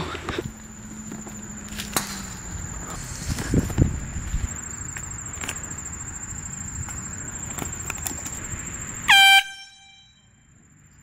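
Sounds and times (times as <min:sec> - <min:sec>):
air horn honk: 0:09.1 - 0:10.4.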